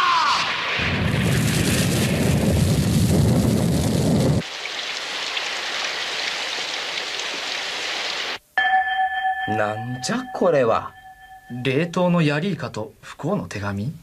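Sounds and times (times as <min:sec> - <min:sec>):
rain hiss: 0:00.6 - 0:08.4.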